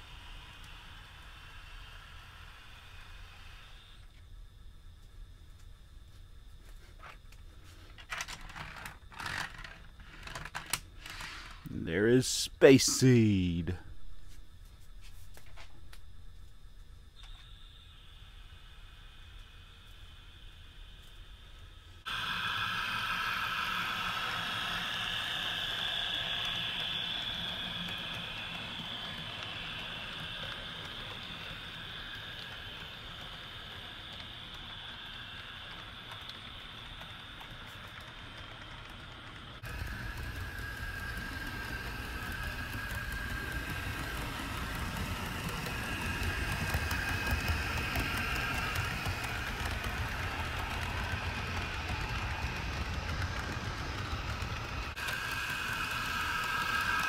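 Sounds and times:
model train motor whirring: 0:00.0 - 0:04.1, 0:08.0 - 0:11.7, 0:17.2 - 0:57.0
wheels rolling on track: 0:07.0 - 0:11.7, 0:21.0 - 0:57.0.

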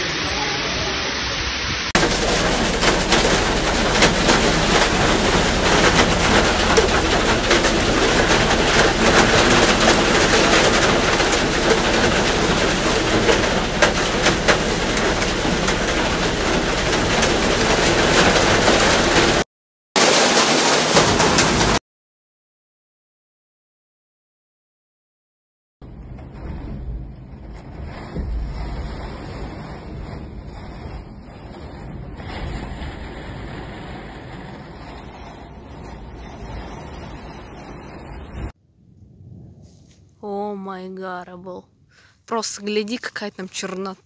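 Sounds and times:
rain rushing: 0:00.0 - 0:19.4, 0:20.0 - 0:21.8, 0:25.8 - 0:40.0
water pouring down stairs: 0:00.0 - 0:19.4, 0:20.0 - 0:21.8, 0:25.9 - 0:38.6
hailstones hitting window glass: 0:01.9 - 0:19.4, 0:20.0 - 0:21.8, 0:27.8 - 0:37.6.

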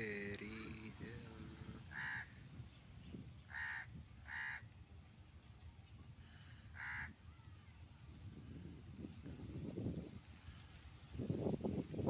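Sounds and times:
crow cawing: 0:01.9 - 0:02.4, 0:03.5 - 0:04.6, 0:06.7 - 0:07.2.

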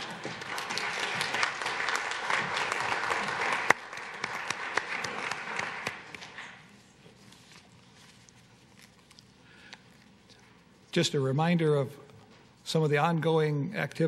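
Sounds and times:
congregation applauding: 0:00.0 - 0:06.6.

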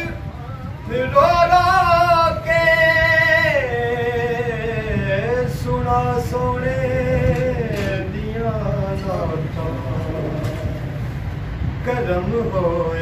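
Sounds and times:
man singing unaccompanied: 0:00.0 - 0:11.1, 0:11.8 - 0:13.0
low room rumble: 0:00.0 - 0:13.0.

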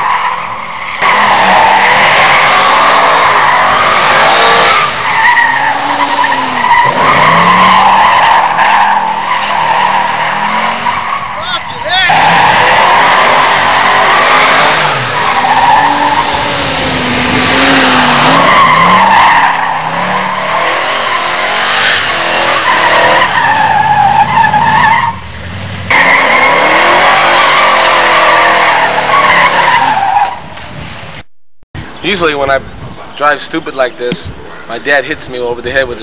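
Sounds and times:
tires squealing: 0:00.0 - 0:30.8
car engine revving: 0:01.0 - 0:11.3, 0:12.1 - 0:30.1.

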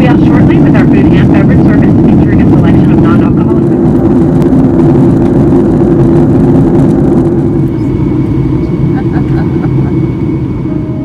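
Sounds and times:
jet airliner cabin noise: 0:00.0 - 0:11.0.

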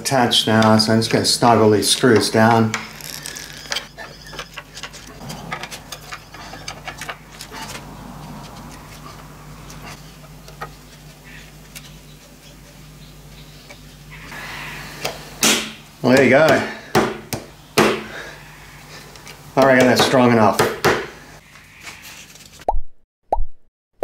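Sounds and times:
steady low hum: 0:00.0 - 0:19.7.

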